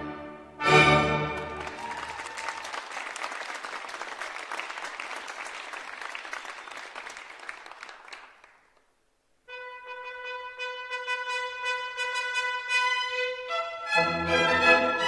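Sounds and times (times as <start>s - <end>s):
audience applauding: 1.3s - 8.9s.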